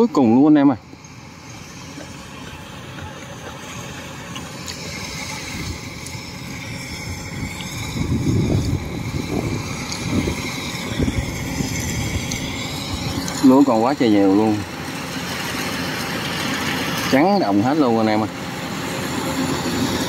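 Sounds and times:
combine harvester running: 0.0s - 20.0s.

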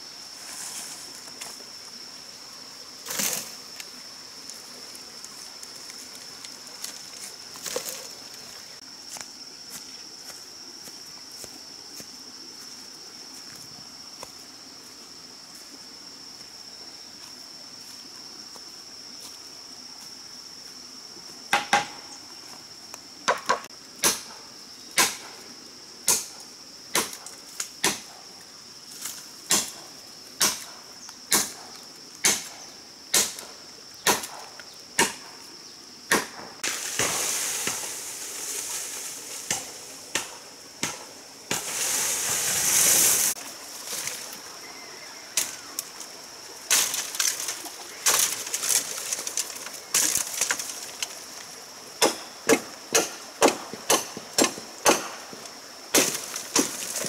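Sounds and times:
bamboo crashing down rustling leaves: 3.0s - 3.6s, 36.1s - 44.4s, 45.4s - 51.4s, 55.9s - 57.0s
blade chopping bamboo: 25.0s - 25.2s, 29.5s - 29.8s, 30.4s - 30.7s, 31.3s - 31.6s, 32.2s - 32.5s, 33.1s - 33.4s, 34.0s - 34.3s, 35.0s - 35.2s, 36.1s - 36.4s, 39.5s - 41.7s, 52.0s - 55.2s.

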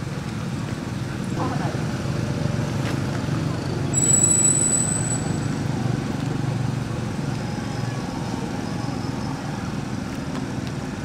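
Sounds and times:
thin high-pitched tone: 3.9s - 5.6s.

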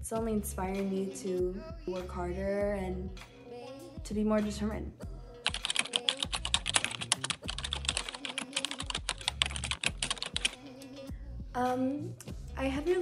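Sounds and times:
keyboard typing clicks: 5.5s - 10.6s.

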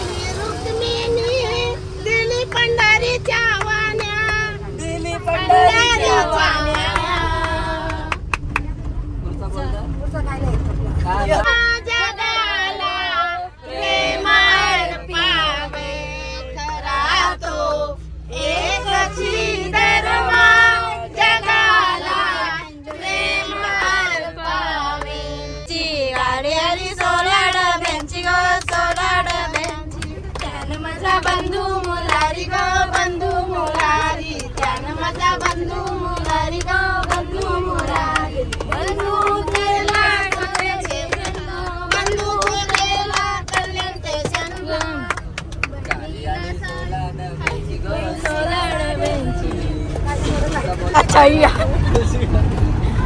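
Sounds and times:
people singing together: 0.0s - 8.4s, 11.4s - 51.6s
moving vehicle rumble: 0.0s - 53.0s.

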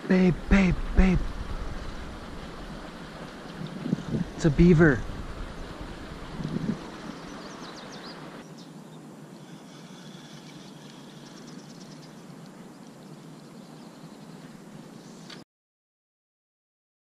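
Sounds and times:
faint open air hiss: 0.0s - 15.4s
low bump: 0.3s - 7.0s.

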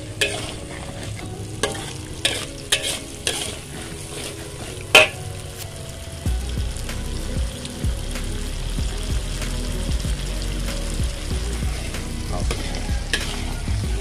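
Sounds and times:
spatula scraping in wok: 0.0s - 5.8s, 11.5s - 14.0s
oil sizzling: 0.0s - 14.0s
spatula clanking on pan: 0.2s - 0.6s, 1.6s - 3.6s, 4.9s - 5.2s.

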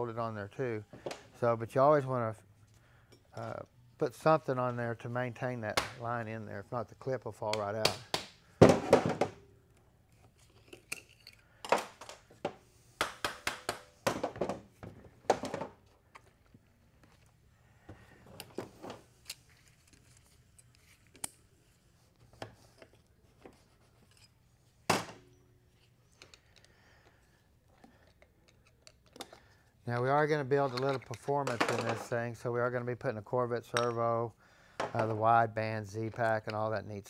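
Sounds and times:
small parts handled on steel bench: 22.2s - 24.4s.

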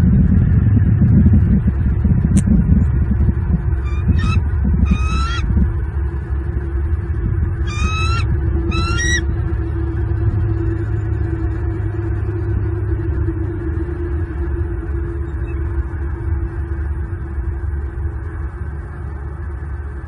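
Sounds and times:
faint hum: 0.0s - 20.0s
low rumble: 0.0s - 20.0s
eagle chittering calls: 3.8s - 5.5s, 7.6s - 9.3s.

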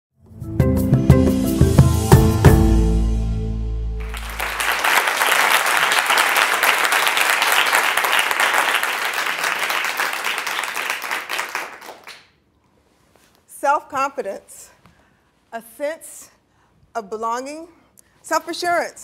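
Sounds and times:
audience applauding: 4.0s - 12.3s.

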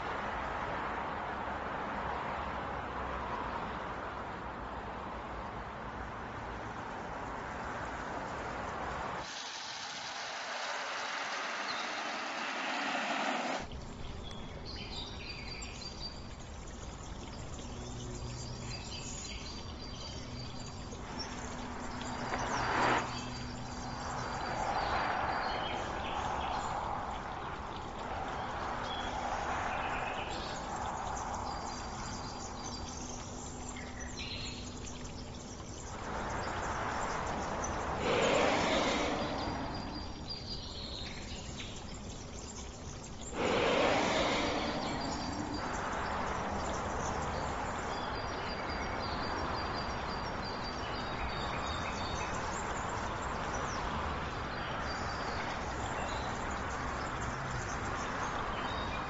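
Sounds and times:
road and tyre noise: 0.0s - 15.2s, 15.9s - 59.0s
outdoor ambience: 0.0s - 59.0s
brief whoosh: 9.2s - 13.7s, 36.4s - 40.3s, 43.3s - 47.0s
faint bird chirps: 9.2s - 53.8s.

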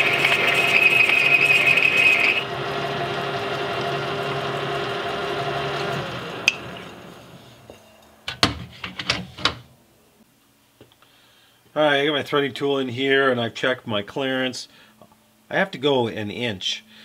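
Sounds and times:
metal lathe gear whine: 0.0s - 8.0s.

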